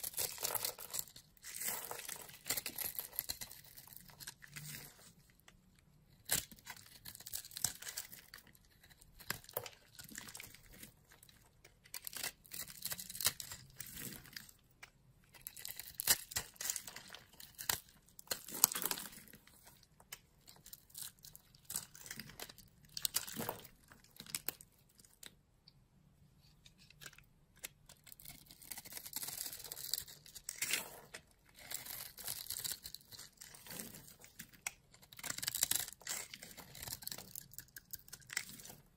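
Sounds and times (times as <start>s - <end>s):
soap cubes crunching: 0.0s - 5.3s, 6.1s - 25.4s, 26.8s - 38.9s
metal blade scraping soap: 27.9s - 38.9s.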